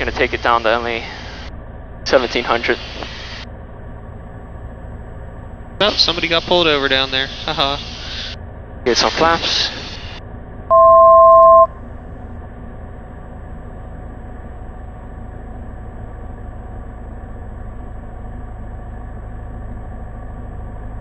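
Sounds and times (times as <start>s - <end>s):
airplane engine drone: 0.0s - 21.0s
two-note electronic beep: 10.7s - 11.8s.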